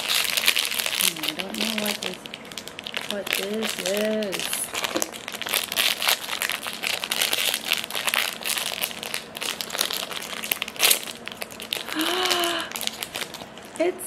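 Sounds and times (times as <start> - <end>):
foil wrapper crinkling: 0.0 - 14.0.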